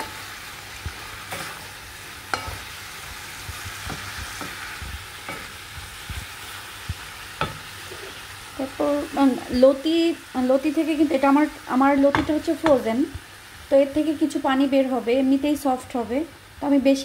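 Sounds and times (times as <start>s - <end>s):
wooden spatula stirring in pan: 0.0s - 8.3s
hot oil sizzling: 0.0s - 17.0s.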